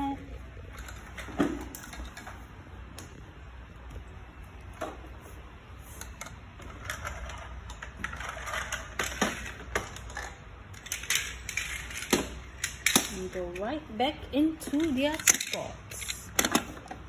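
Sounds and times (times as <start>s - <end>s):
plastic toys clattering on tile: 0.6s - 2.5s, 6.0s - 13.8s, 14.6s - 17.0s.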